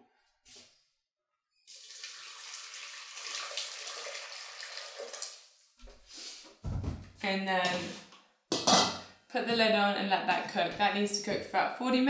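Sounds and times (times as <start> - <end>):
water pouring into metal pan: 1.7 - 5.5.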